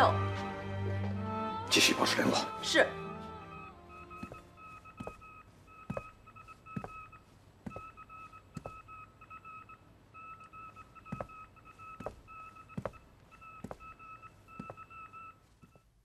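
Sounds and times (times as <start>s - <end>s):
morse code beeps: 3.4s - 16.0s.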